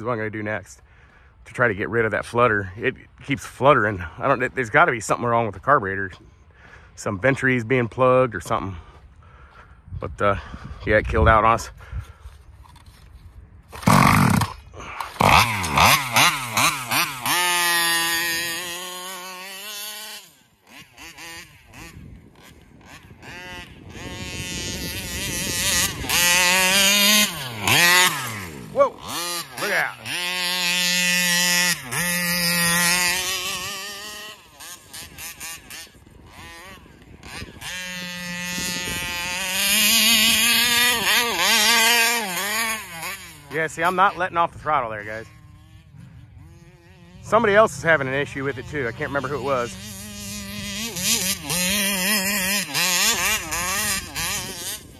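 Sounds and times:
two-stroke engine revving: 13.7s - 54.9s.

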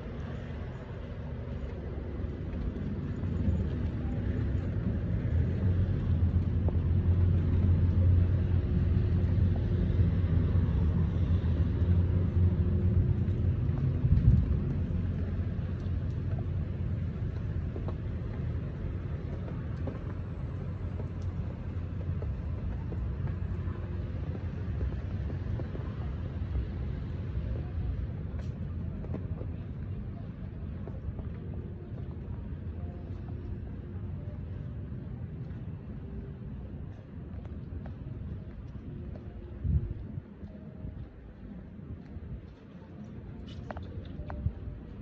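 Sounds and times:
outdoor street rumble: 0.0s - 45.0s.

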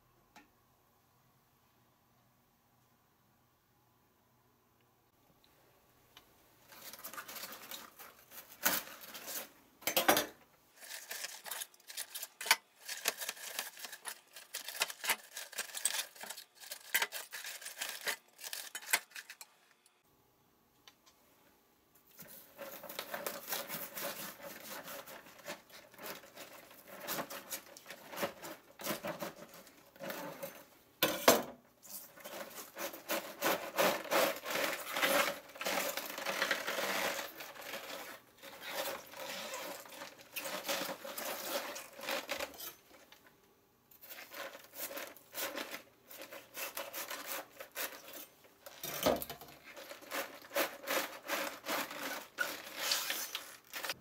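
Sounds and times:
knife sawing into cabbage: 32.3s - 37.9s, 44.3s - 48.3s, 49.8s - 53.4s.

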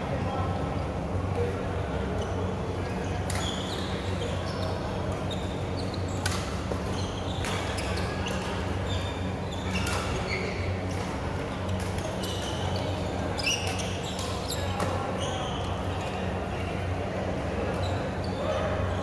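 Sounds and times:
shoes squeaking on court floor: 2.2s - 16.3s.

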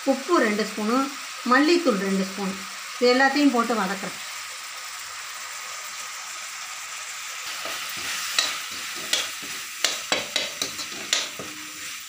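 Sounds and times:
vegetables sizzling in oil: 0.0s - 12.0s
metal spatula scraping pan: 7.5s - 12.0s.

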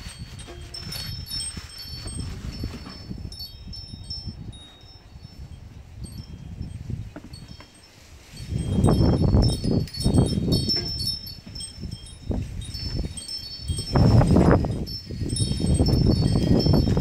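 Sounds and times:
wind chime ringing: 0.0s - 17.0s
wind rumble on microphone: 0.0s - 17.0s.

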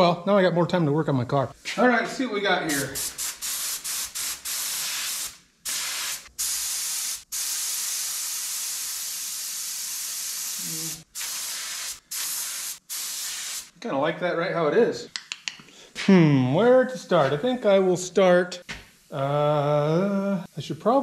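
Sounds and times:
spray gun hissing: 2.7s - 13.7s.

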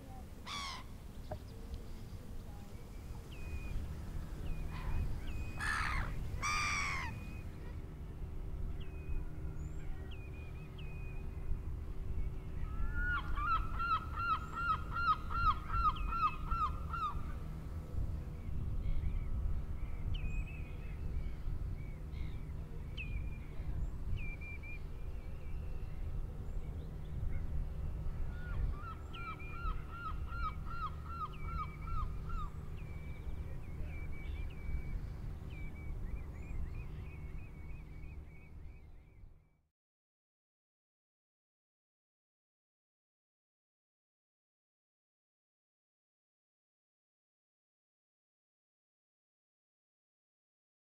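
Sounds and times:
higher bird calls: 0.4s - 1.6s, 4.4s - 7.7s.

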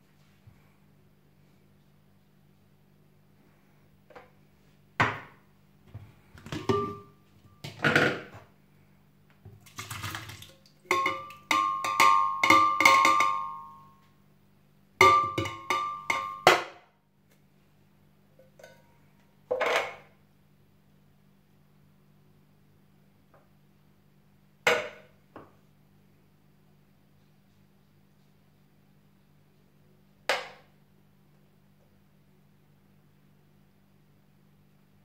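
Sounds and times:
tin can knocking on glass jar: 6.5s - 8.3s, 10.9s - 13.6s, 15.0s - 16.7s
glass ringing: 6.7s - 7.2s, 10.9s - 13.9s, 15.0s - 16.5s.

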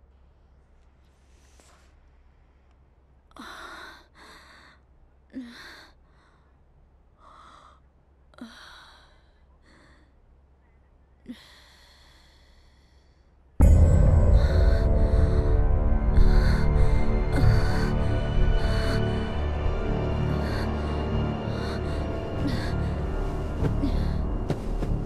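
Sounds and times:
person breathing heavily: 11.2s - 13.5s, 14.2s - 25.0s.

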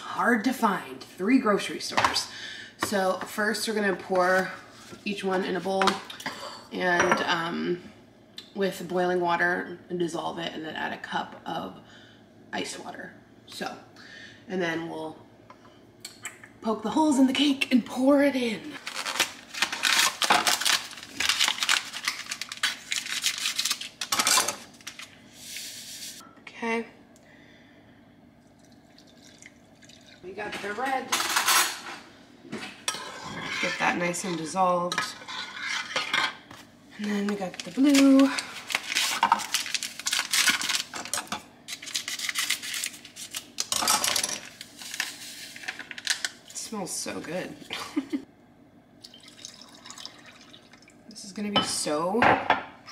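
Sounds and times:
packaging crinkling and tearing: 18.8s - 25.1s, 37.3s - 46.4s
spoon stirring in bowl: 32.9s - 36.6s.

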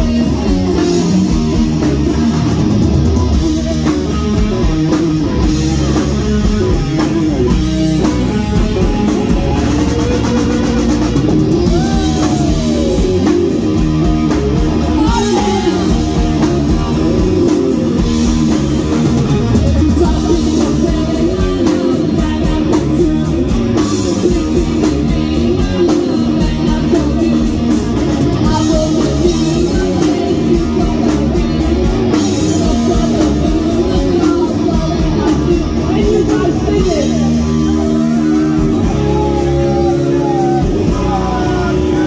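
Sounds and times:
bass guitar: 0.0s - 42.0s
drum kit: 0.0s - 42.0s
electric guitar: 0.0s - 42.0s
loud live rock band: 0.0s - 42.0s.

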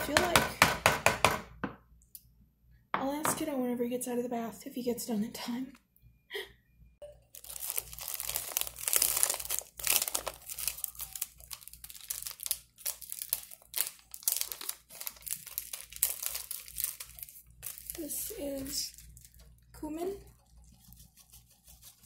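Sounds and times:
plastic bag crinkling: 7.4s - 22.0s.

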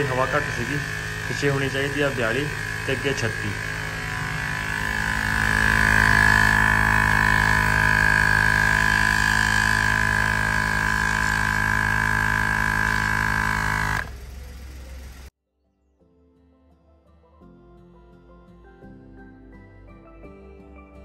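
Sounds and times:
air compressor pulsing hum: 0.0s - 15.3s.

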